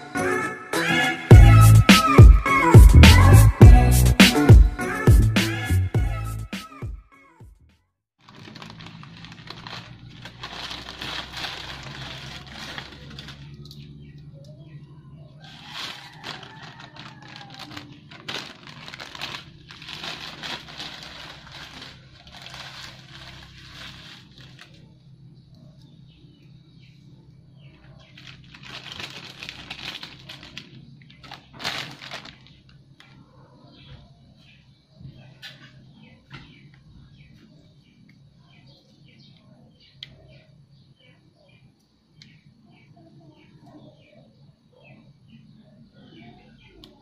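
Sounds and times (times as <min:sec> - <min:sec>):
plastic packaging crinkling: 0:08.2 - 0:14.0, 0:15.4 - 0:24.9, 0:27.9 - 0:33.2.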